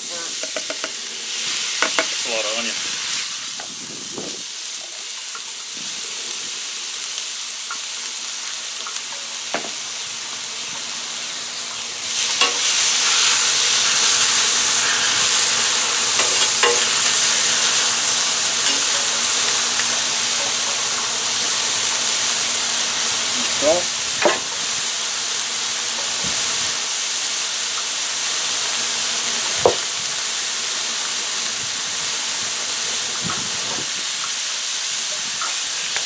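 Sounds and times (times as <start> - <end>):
onion sizzling on griddle: 0.0 - 36.0
metal spatula scraping griddle: 12.2 - 19.2.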